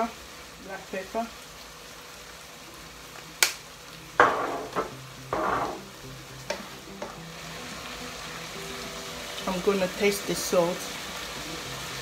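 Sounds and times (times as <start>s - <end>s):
meat sizzling in a frying pan: 0.0s - 12.0s
sharp knock: 4.2s - 5.8s.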